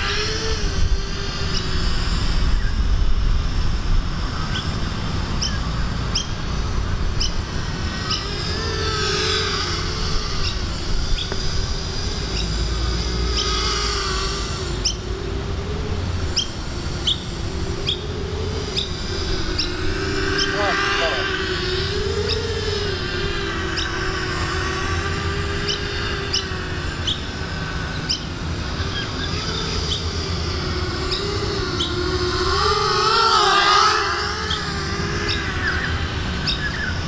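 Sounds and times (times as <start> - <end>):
quadcopter motors buzzing: 0.0 - 37.0
bird chirps: 5.4 - 6.4, 35.3 - 37.0.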